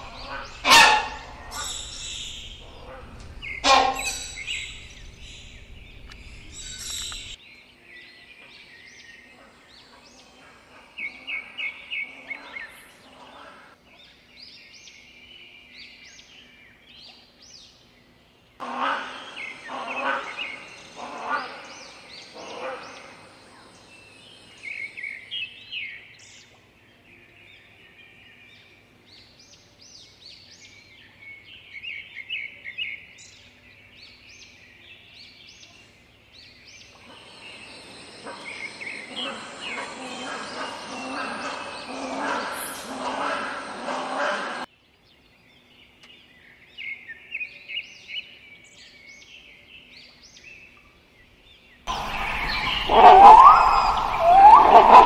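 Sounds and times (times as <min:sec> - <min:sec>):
loud harsh bird calls: 0:00.0 - 0:07.4, 0:18.6 - 0:23.8, 0:36.8 - 0:44.7, 0:51.9 - 0:55.0
rapid high chirping: 0:00.0 - 0:07.4.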